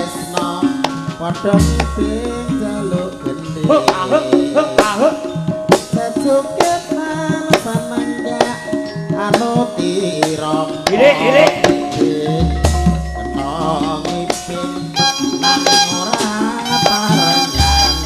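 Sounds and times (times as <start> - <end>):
ringing metallophone notes: 0.0 - 18.0
hand drum strokes: 9.2 - 18.0.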